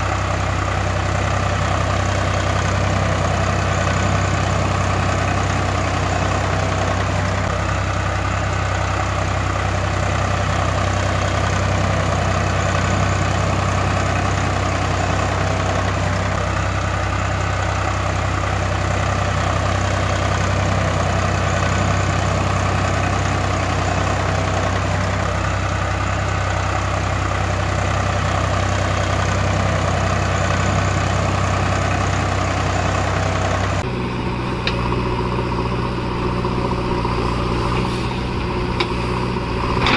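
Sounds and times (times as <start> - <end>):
tractor engine idling: 0.0 - 39.9.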